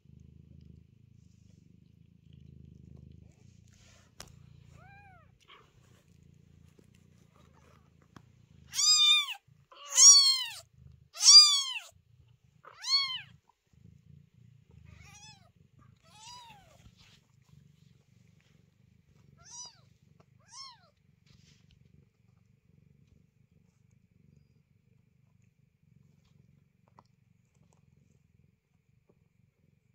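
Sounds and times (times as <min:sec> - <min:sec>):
cat purring: 0:00.0 - 0:29.9
kitten mewing: 0:08.7 - 0:11.9.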